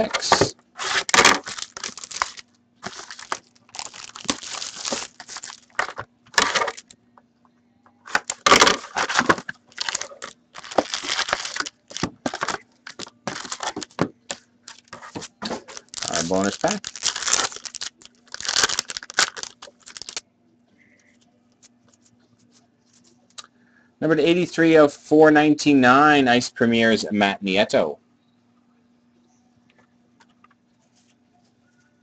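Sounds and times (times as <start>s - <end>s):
faint steady hum: 0.0s - 32.0s
wrapping and cardboard crinkling: 0.3s - 6.9s, 8.1s - 20.2s.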